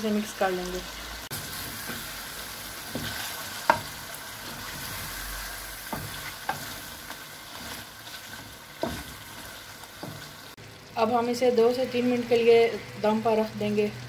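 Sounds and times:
food sizzling in a metal pan: 0.0 - 14.0
wooden spoon scraping a pan: 1.3 - 10.5
spoon knocking against pan: 2.9 - 4.0, 5.9 - 6.7.

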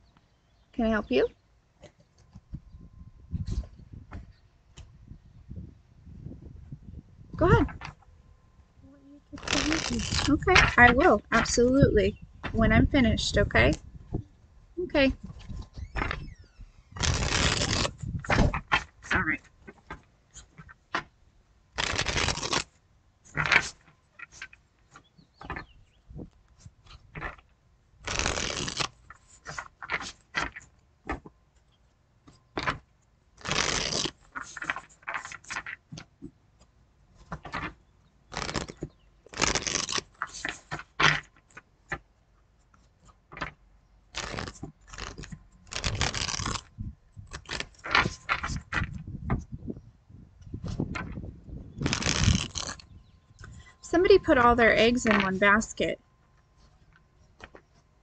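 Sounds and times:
cards riffling: 9.4 - 10.8, 17.0 - 21.1, 21.8 - 24.6, 28.0 - 31.3, 32.6 - 36.1, 37.3 - 42.0, 43.3 - 46.7, 47.3 - 49.0, 51.8 - 53.6.

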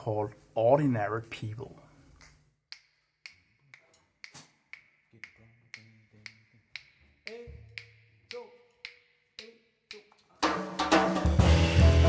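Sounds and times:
faint finger snaps: 2.2 - 10.1.

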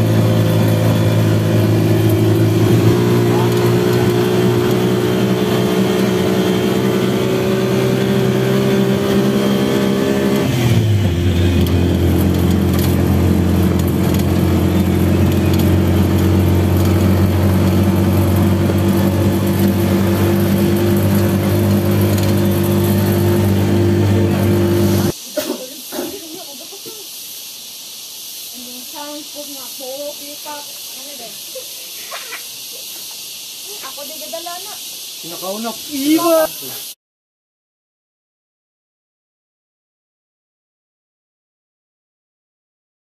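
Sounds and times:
engine running: 0.0 - 25.2.

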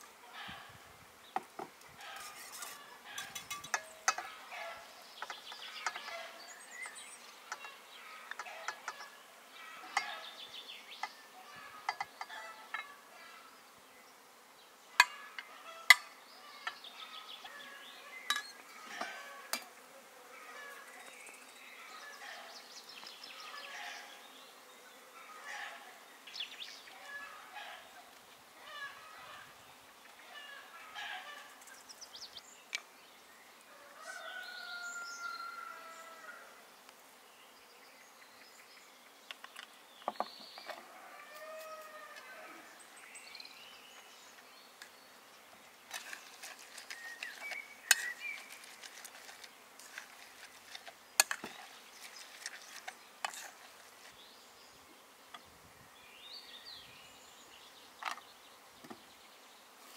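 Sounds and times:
birds calling: 0.3 - 13.6, 14.9 - 19.7, 37.6 - 59.9.

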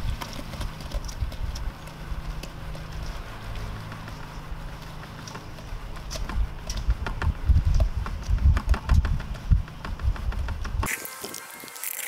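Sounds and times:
dull thuds and sharp knocks: 6.2 - 10.9.

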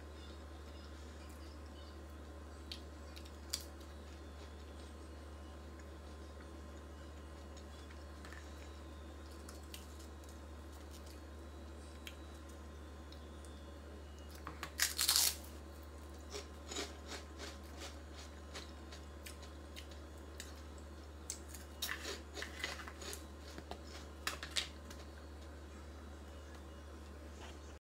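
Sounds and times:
crisp crackling chewing: 14.3 - 25.5
crunchy chip being bitten: 14.6 - 15.5, 16.3 - 20.6, 21.3 - 25.0.

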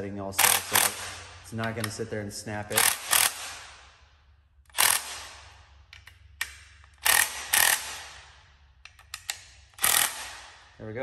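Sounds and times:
cordless drill bursts: 9.8 - 10.3.

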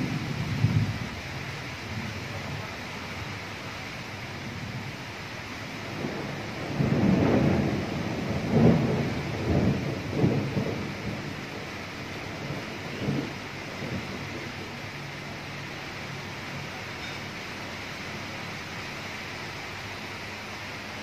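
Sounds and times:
thunder rumbling: 0.0 - 3.3, 5.6 - 15.6
rain hiss: 0.0 - 21.0.

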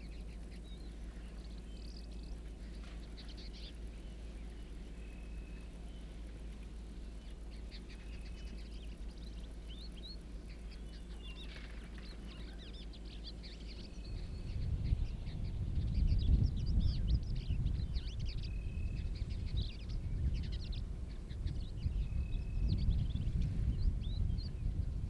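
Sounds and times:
birds chirping: 0.0 - 25.0
steady low hum: 0.0 - 25.0
uneven low rumbling: 0.0 - 25.0.

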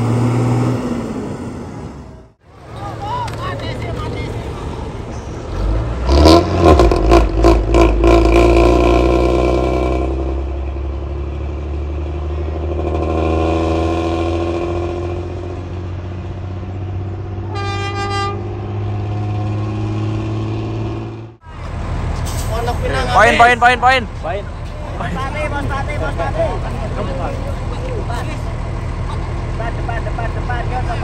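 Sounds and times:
bus diesel engine revving: 0.0 - 2.4, 5.1 - 31.0
horn toot: 17.5 - 18.9.

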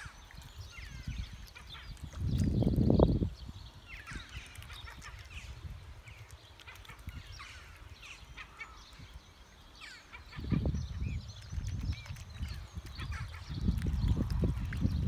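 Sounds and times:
cygnets peeping: 3.9 - 15.0.

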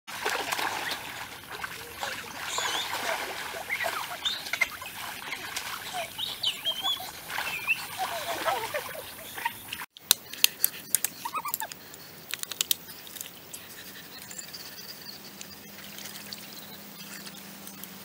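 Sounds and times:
water splashing and churning: 0.1 - 9.9.

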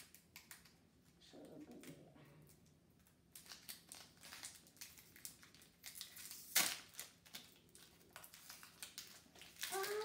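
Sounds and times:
foil wrapper crinkling and tearing: 0.0 - 0.8, 3.3 - 10.0.

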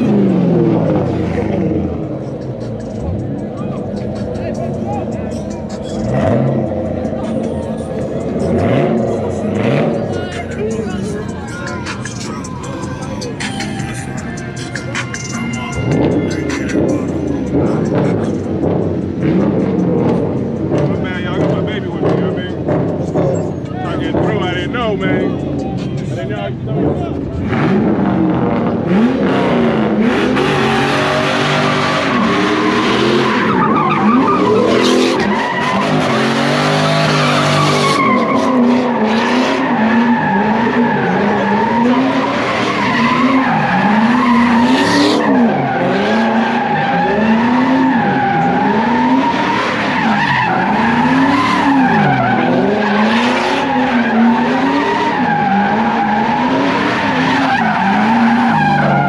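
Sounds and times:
car engine revving: 0.0 - 59.0
tire squeal: 15.0 - 59.0.

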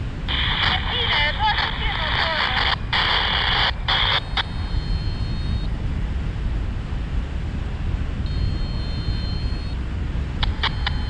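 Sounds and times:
wind buffeting microphone: 0.0 - 11.0
faint high double tone: 4.2 - 5.7, 8.3 - 9.8
sharp clicks: 10.4 - 11.0.

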